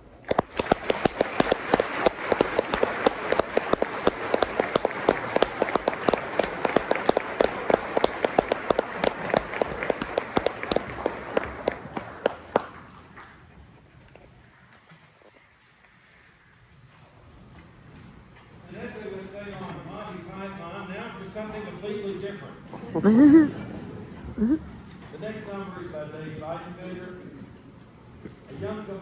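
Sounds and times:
hands clapping close by: 0.2s - 13.5s
audience applauding: 0.2s - 13.6s.

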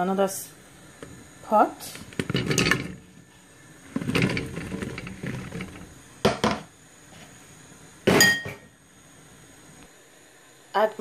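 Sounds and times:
vegetable pieces tumbling into pot: 1.0s - 6.7s.

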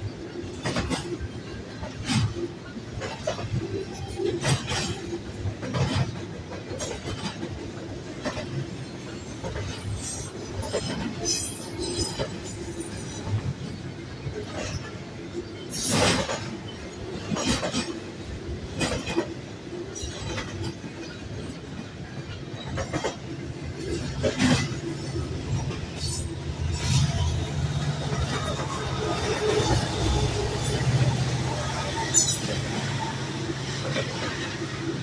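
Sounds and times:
train wheels rumbling on rails: 0.0s - 35.0s
wheels clacking over rail joints: 0.0s - 35.0s.

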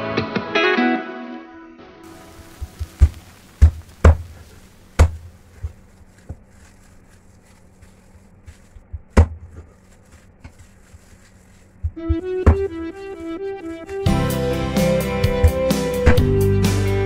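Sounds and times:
cleaver chopping on wooden board: 5.0s - 5.2s, 9.0s - 9.6s, 11.8s - 12.8s.

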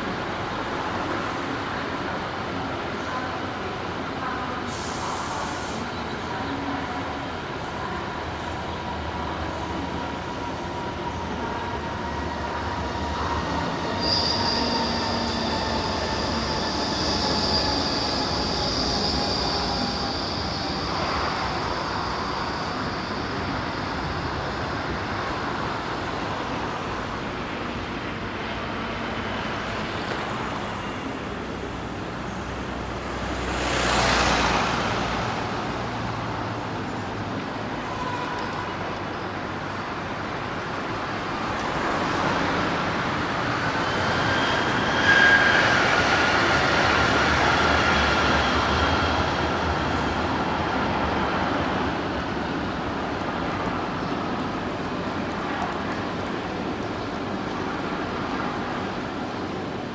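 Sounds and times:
train wheels squealing: 8.8s - 26.5s, 37.7s - 38.8s, 41.6s - 51.8s.

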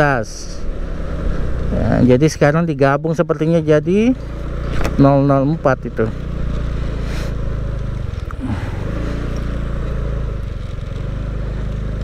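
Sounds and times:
motorcycle engine running: 0.0s - 12.0s
road and wind noise: 0.0s - 12.0s.

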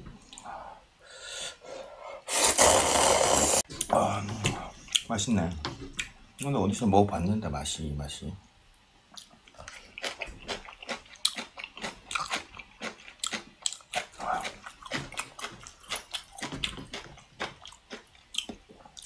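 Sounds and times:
wet crunchy chewing: 9.2s - 19.0s.

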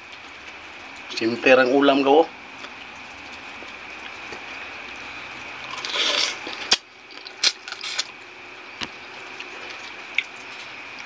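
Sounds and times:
man sucking shrimp: 5.6s - 8.1s.

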